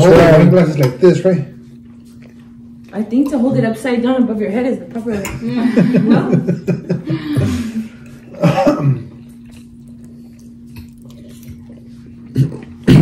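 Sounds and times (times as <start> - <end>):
voices at table: 0.0 - 8.2
faint steady hum: 0.0 - 13.0
person coughing: 8.3 - 9.2, 12.3 - 13.0.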